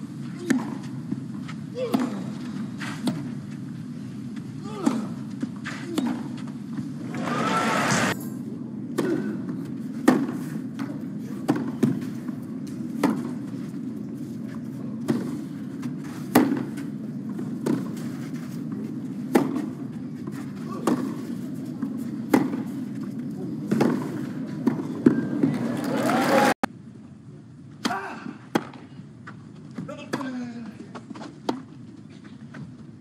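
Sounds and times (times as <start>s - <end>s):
crowd hum: 2.1s - 26.6s
tennis ball hit by rackets: 9.9s - 12.2s, 13.0s - 13.5s, 15.0s - 18.5s, 19.2s - 19.8s, 20.4s - 23.0s, 23.7s - 25.6s.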